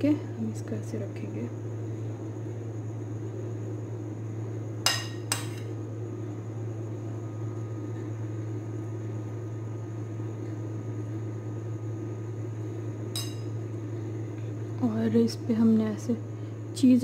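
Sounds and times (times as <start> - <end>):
steady low hum: 0.0 - 17.0
metal spoon clinking on a dish: 13.2 - 13.5.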